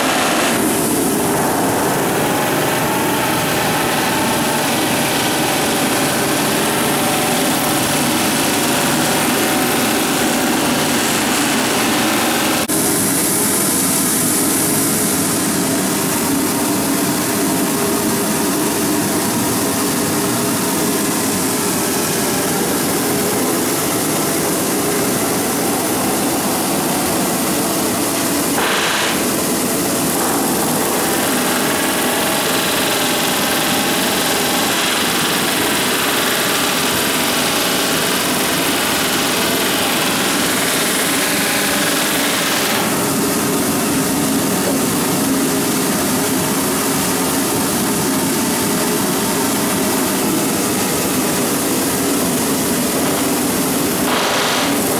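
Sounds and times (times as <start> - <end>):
rivet forge running: 0.2 - 12.8, 20.4 - 48.7.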